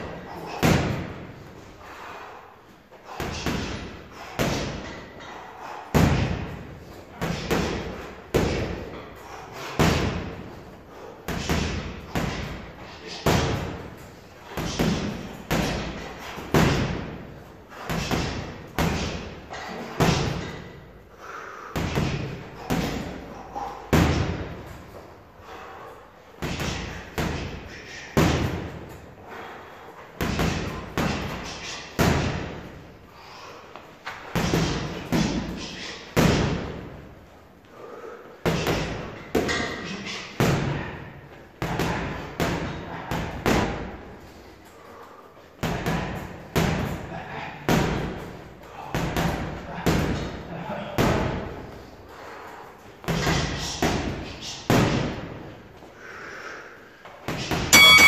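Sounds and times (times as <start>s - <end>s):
gloves punching heavy bag: 0.0s - 1.6s, 3.0s - 20.8s, 21.8s - 23.3s, 23.9s - 25.0s, 26.4s - 29.0s, 30.2s - 32.6s.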